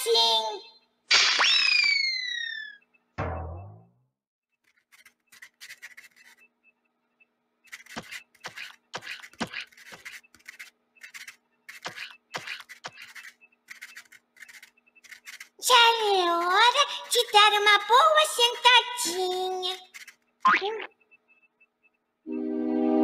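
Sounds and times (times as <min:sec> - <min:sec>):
pen scratching on paper: 0:04.7 - 0:06.4, 0:07.7 - 0:17.6.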